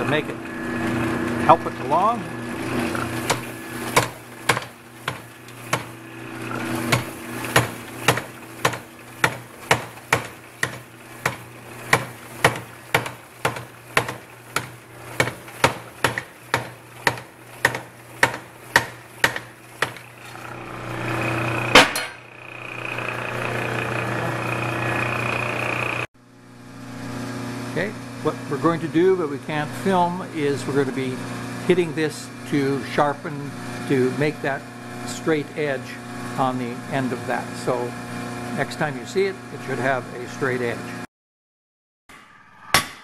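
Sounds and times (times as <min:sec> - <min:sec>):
power hammer running: 0:00.0 - 0:26.1
power hammer blows on hot steel: 0:03.2 - 0:22.3, 0:42.1 - 0:43.0.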